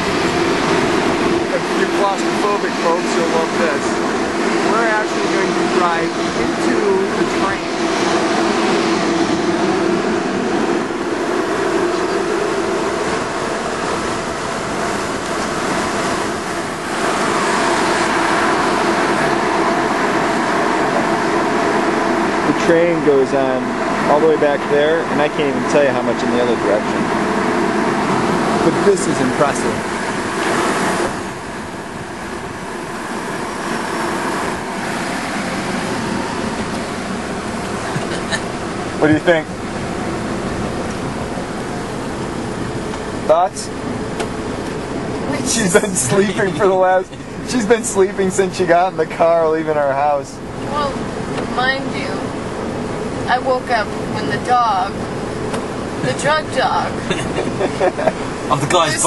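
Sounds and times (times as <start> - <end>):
car driving noise from inside: 0.0 - 59.0
low hum: 0.0 - 59.0
car moving slowly from inside: 28.6 - 51.9.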